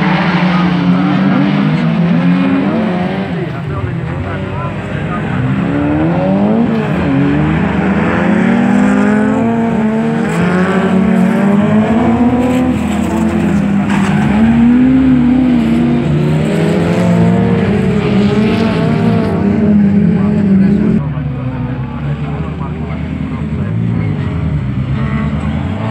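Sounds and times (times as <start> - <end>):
race car engines revving: 0.0 - 25.9.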